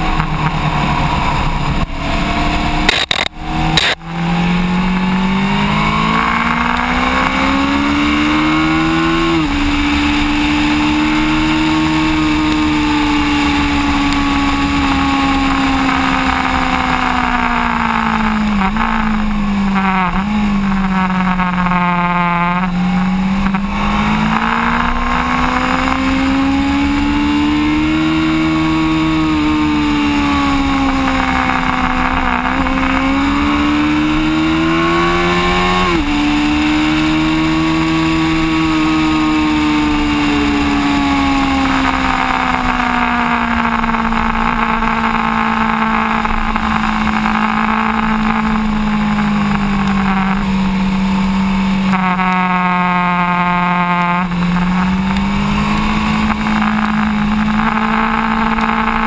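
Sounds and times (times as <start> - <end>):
motorcycle engine running hard: 0.0 - 59.0
wind and road noise: 0.0 - 59.0.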